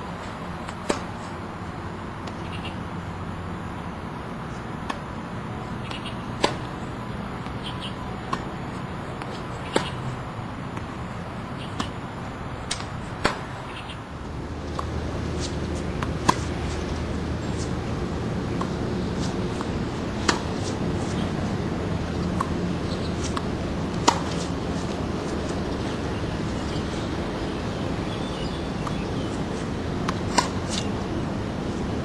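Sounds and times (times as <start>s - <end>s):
steady background hum: 0.0s - 32.0s
tennis ball pops: 19.6s - 20.6s, 23.2s - 24.5s, 30.0s - 30.9s.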